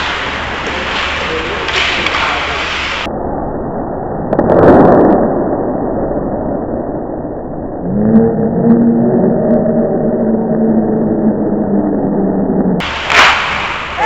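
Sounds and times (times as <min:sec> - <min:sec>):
skates and sticks scraping ice: 0:00.0 - 0:03.1.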